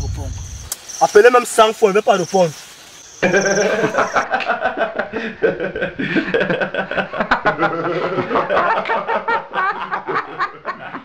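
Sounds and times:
people talking: 0.0 - 0.4, 1.0 - 2.6, 3.2 - 4.3
people laughing: 3.2 - 11.0.

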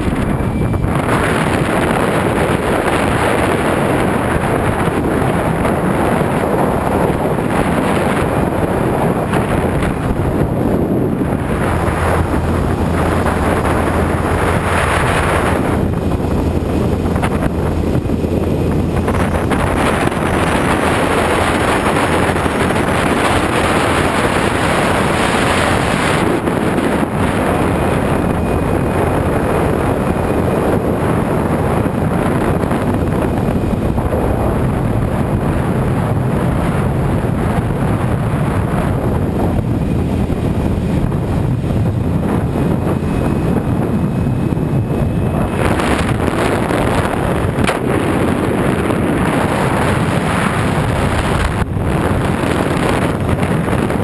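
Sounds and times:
motorcycle engine running: 0.0 - 35.9
wind rushing over microphone: 0.0 - 54.0.

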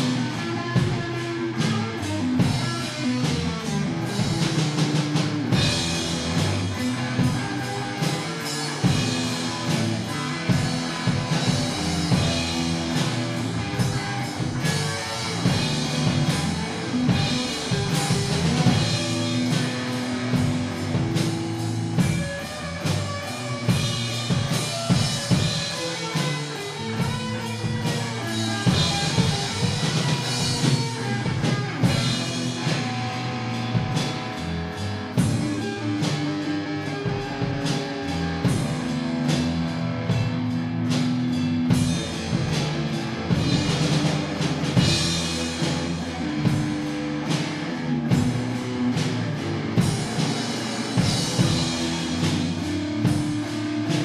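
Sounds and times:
drum kit beat: 0.0 - 54.0
electric guitars: 0.0 - 54.0
rock band playing live: 0.0 - 54.0.

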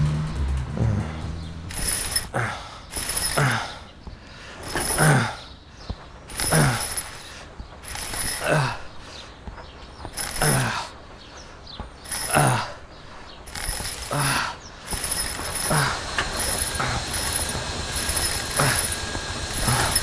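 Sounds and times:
mechanism creaking: 1.7 - 3.6, 6.2 - 8.8, 10.0 - 10.7, 13.4 - 20.0.

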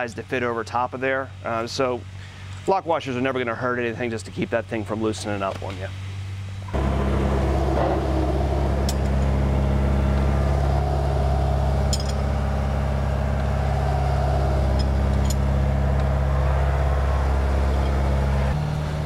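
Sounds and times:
low mechanical drone: 6.4 - 19.0
wrench clinking on metal: 11.9 - 12.2.

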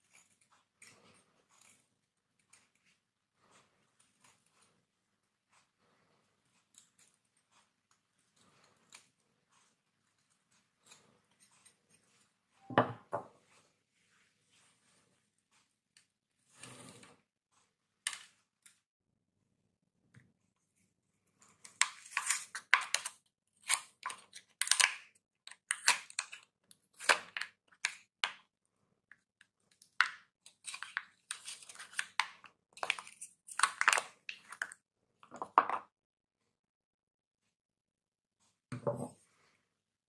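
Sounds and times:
soap wrapper crinkling and tearing: 21.7 - 28.2, 29.8 - 34.8.

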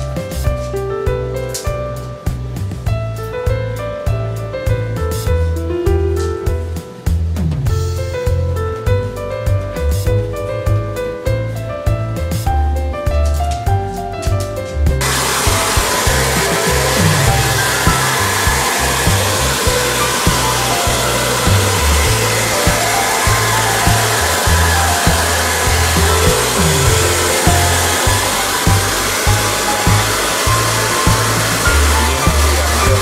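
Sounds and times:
hair dryer blowing: 15.0 - 33.0.

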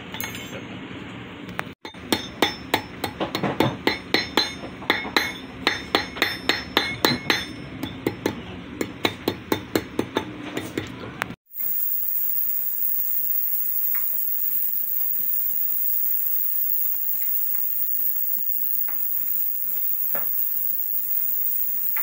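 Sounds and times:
hammer striking metal wire: 2.1 - 10.8
steady hiss: 11.5 - 22.0.

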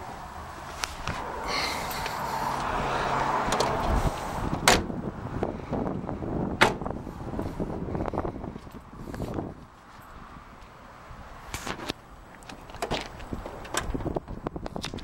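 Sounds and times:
car rear door knocks: 6.6 - 6.9.

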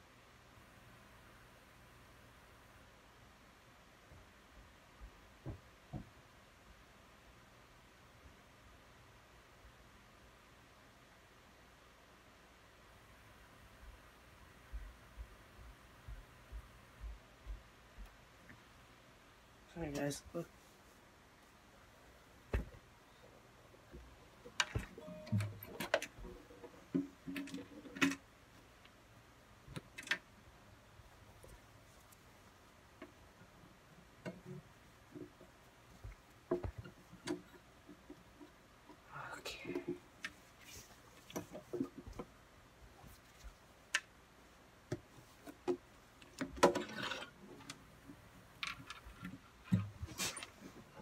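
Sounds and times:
acoustic guitar being handled: 24.5 - 28.2
guitar ringing tones: 25.0 - 25.8.

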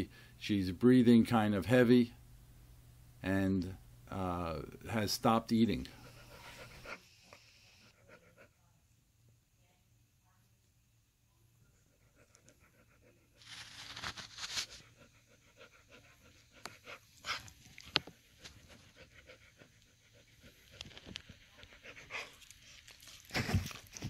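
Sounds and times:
dog panting heavily: 5.9 - 7.1, 7.8 - 8.7, 11.8 - 13.4, 14.5 - 22.7.

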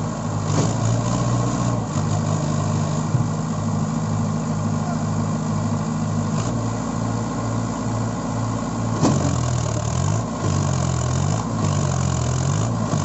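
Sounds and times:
tractor diesel engine labouring: 0.0 - 13.0.

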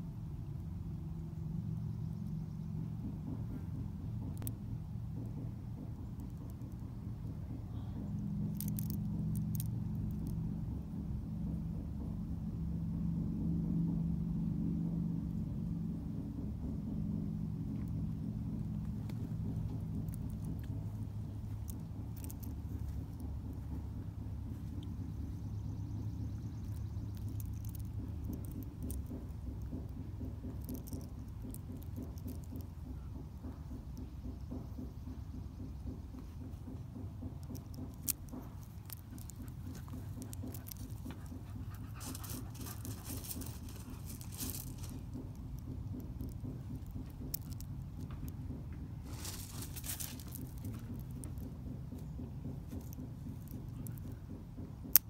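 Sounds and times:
low rumble: 0.0 - 55.0.

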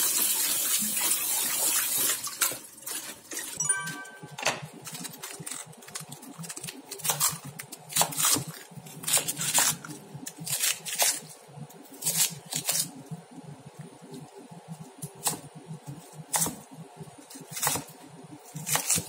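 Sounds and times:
knife cutting crisp cabbage: 4.8 - 13.0, 15.0 - 19.0.

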